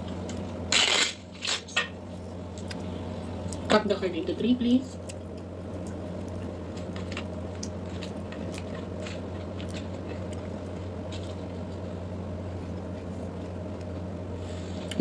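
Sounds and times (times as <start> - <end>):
low machine hum: 0.0 - 15.0
faint crackles and clicks: 5.0 - 14.1.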